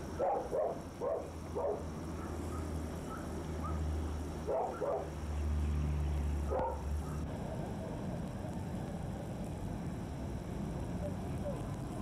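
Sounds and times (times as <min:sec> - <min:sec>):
dog barking: 0:00.2 - 0:05.1, 0:06.5 - 0:07.7.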